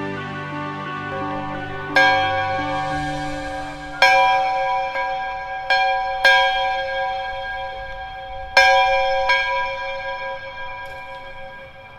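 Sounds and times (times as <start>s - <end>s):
bell-like chime notes: 1.1s - 11.8s.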